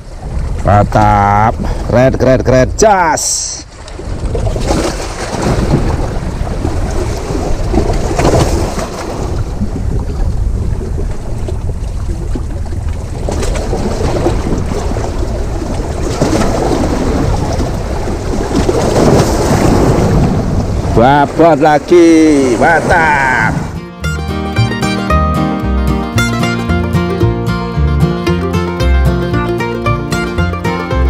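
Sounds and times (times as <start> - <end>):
wind buffeting microphone: 0.0 - 23.8
waves washing against rocks: 3.4 - 23.8.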